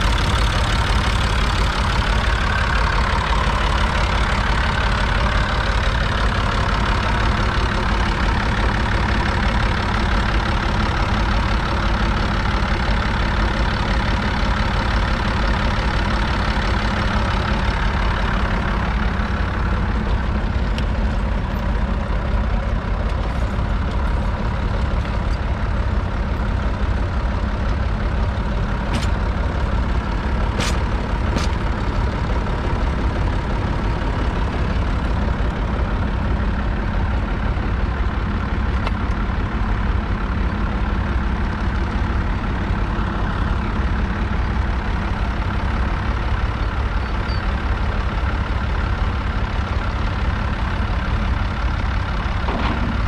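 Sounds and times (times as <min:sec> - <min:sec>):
diesel engine rumbling: 0:00.0 - 0:53.0.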